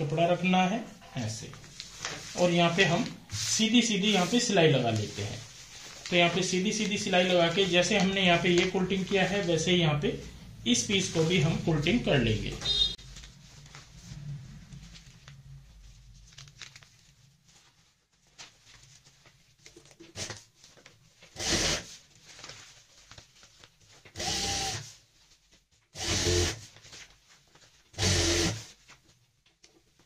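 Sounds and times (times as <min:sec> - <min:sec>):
fabric rustling: 0:01.4 - 0:09.6, 0:12.6 - 0:19.8, 0:21.9 - 0:24.1
sewing machine bursts: 0:28.0 - 0:28.6.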